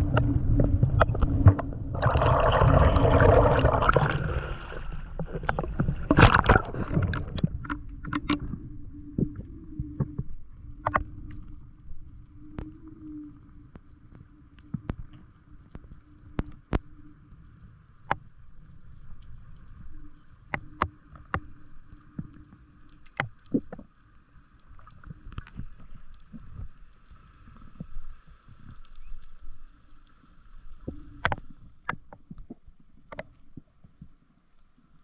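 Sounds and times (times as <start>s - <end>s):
underwater rush of water: 0.0s - 11.5s
faint hum: 0.0s - 23.0s.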